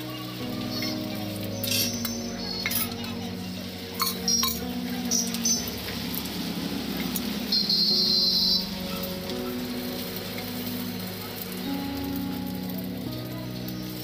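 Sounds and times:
metal spatula clinking on griddle: 4.0s - 5.3s.

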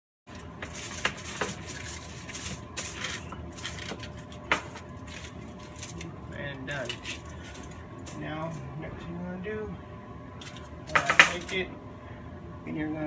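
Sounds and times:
aluminum foil crinkling: 0.3s - 8.6s.

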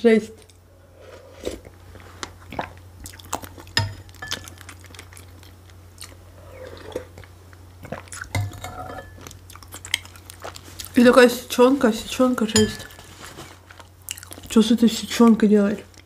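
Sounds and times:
person chewing food: 0.4s - 11.0s, 13.2s - 14.5s.

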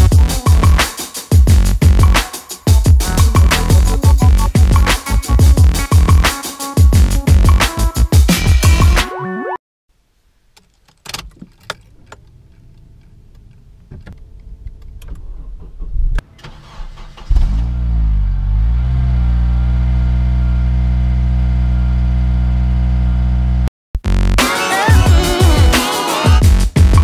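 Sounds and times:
car engine starting and idling: 10.6s - 23.7s.

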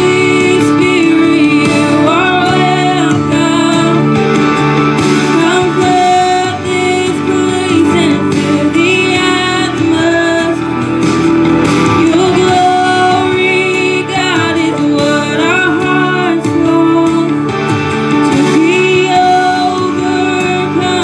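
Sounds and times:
electronic keyboard: 0.0s - 21.0s
woman singing into a microphone: 0.0s - 21.0s.

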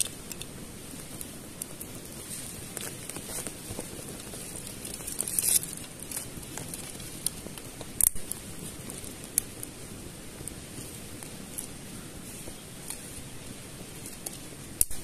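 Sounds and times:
tinder crackling: 0.0s - 15.0s
sharp pops: 14.1s - 15.0s.

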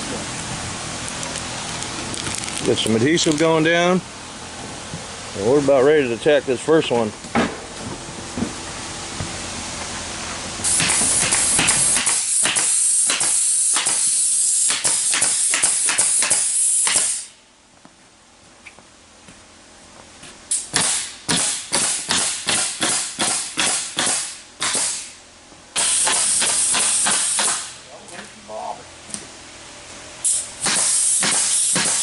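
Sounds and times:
air hiss: 10.6s - 17.4s, 20.5s - 25.2s, 25.8s - 27.8s, 30.2s - 32.0s
pneumatic stapler shots: 10.6s - 17.4s, 20.5s - 25.2s, 25.8s - 27.8s, 30.2s - 32.0s.

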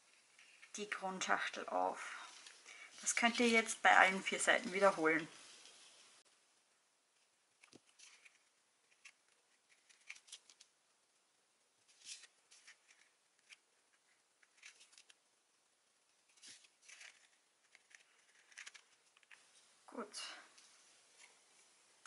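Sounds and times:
paper rustling and crinkling: 7.6s - 10.7s, 11.8s - 15.2s, 16.2s - 19.6s.

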